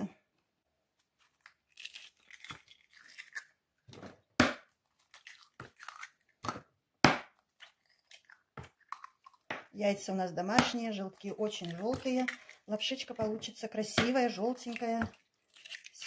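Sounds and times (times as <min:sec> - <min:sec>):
eggshells tapping and crunching: 0:01.2 - 0:09.8, 0:10.4 - 0:16.0
sharp eggshell cracks: 0:01.4 - 0:03.6, 0:04.4 - 0:06.5, 0:14.6 - 0:16.0.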